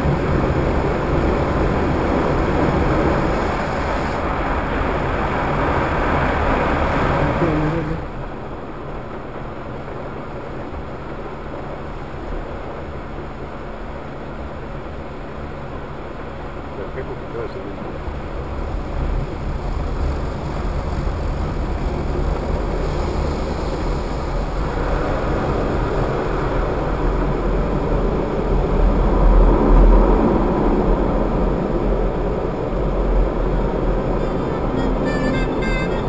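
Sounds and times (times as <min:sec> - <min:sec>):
steady low rumble: 0:00.0 - 0:36.0
water jets spraying on car: 0:18.1 - 0:29.3.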